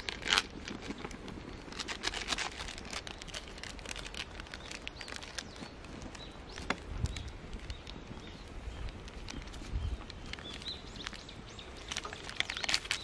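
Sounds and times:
wood fire crackling: 0.0s - 13.0s
birds chirping: 2.9s - 13.0s.

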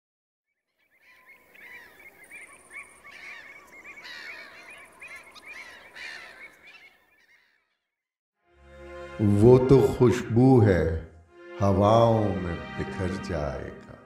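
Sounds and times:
waterbirds calling: 0.5s - 8.0s.

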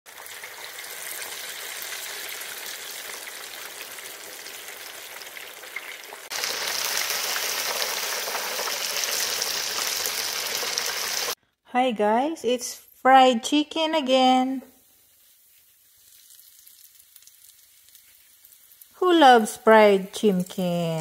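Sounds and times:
chicken deep-frying in oil: 0.0s - 11.4s, 14.2s - 21.0s.

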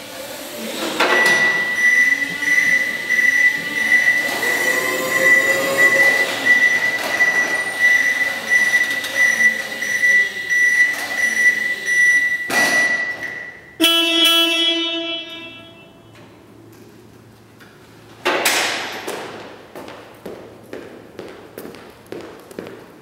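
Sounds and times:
reversing alarm beeping: 1.0s - 16.1s
electric motor whining: 3.6s - 7.0s.

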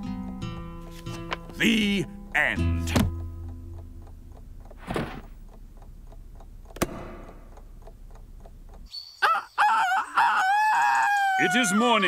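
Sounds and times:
alarm clock ticking: 1.6s - 8.9s
sharp click: 6.6s - 8.9s
rooster crowing: 9.2s - 12.0s.

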